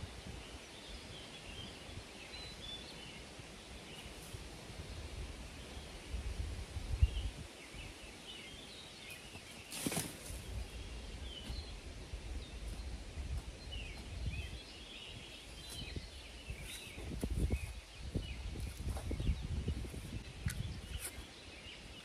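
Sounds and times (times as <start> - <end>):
small birds chirping: 0.0 - 22.0
brief rustle: 9.6 - 10.4.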